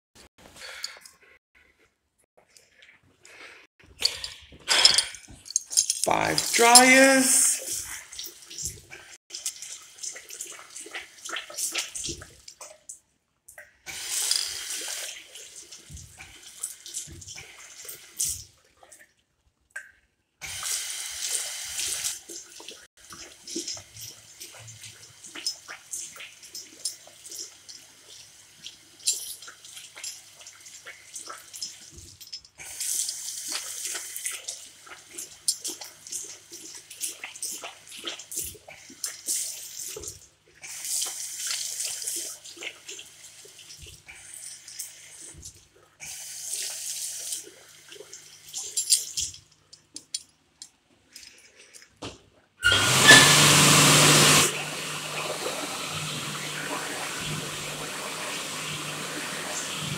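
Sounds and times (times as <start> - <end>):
tap water running over hands: 13.9 - 18.6, 20.4 - 49.1, 52.6 - 59.9.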